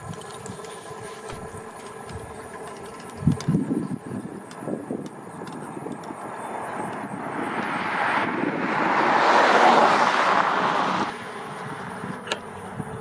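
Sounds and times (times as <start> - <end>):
passing vehicle rushing: 5.8 - 13.0.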